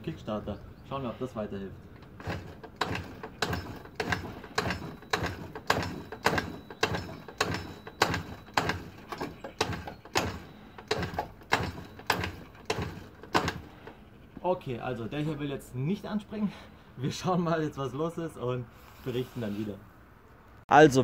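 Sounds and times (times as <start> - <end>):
scooter kick-start clacking: 2.0 - 14.0.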